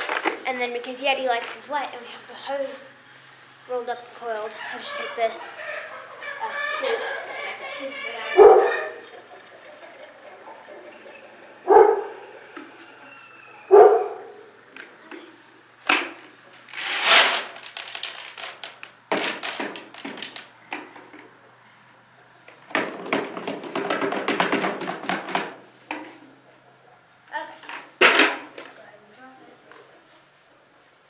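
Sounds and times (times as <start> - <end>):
dog barking: 8.4 - 9.0, 11.7 - 12.2, 13.7 - 14.4
plastic bucket and scoop rattling: 16.7 - 20.5, 22.7 - 25.6.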